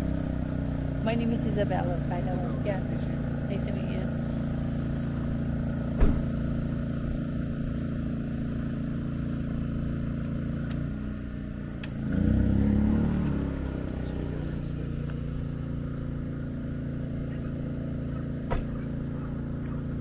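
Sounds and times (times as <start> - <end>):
engine hum: 0.0 - 20.0
sharp knock: 6.0 - 6.3
whir rising and falling in pitch: 11.8 - 14.5.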